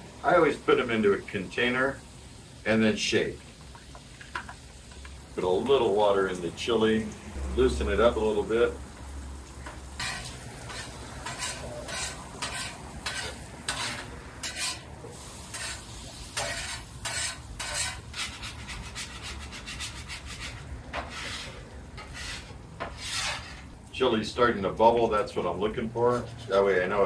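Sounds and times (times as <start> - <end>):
low sizzle: 0.0 - 27.0
spoon stirring in steel pot: 9.6 - 14.9, 15.5 - 23.7
metal spatula scraping griddle: 9.6 - 23.8.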